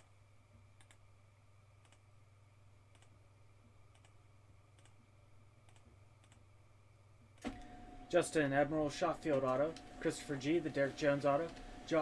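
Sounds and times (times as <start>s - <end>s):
steady low hum: 0.0s - 12.0s
computer mouse clicks: 0.8s - 1.0s, 1.8s - 2.0s, 2.9s - 3.2s, 3.9s - 5.0s, 5.6s - 6.4s.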